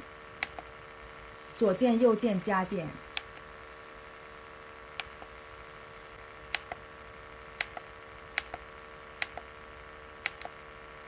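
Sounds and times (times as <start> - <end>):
faint steady hum: 0.0 - 11.0
plastic keypad buttons clicking: 7.6 - 7.8, 10.3 - 10.5.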